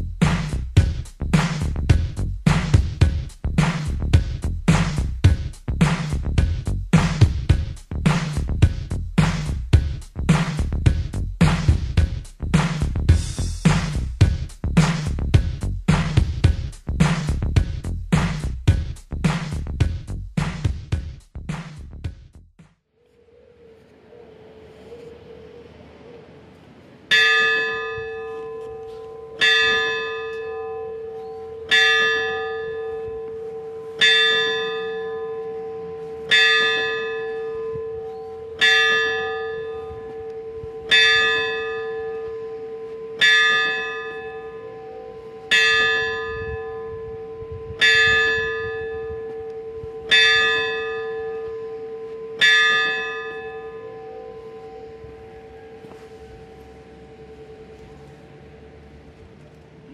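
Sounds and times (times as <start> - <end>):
steady hum: 23.0 - 59.9
church bell striking: 27.1 - 58.6.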